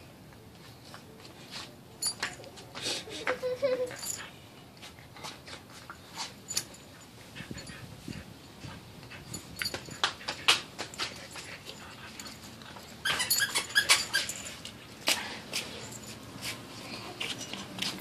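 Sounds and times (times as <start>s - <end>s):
dogs whining and whimpering: 13.0s - 14.6s.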